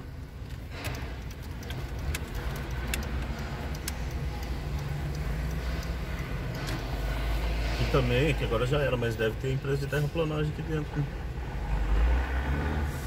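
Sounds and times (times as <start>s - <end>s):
light ticks: 0.0s - 7.3s
car engine running: 0.0s - 10.6s
road rumble: 0.0s - 13.0s.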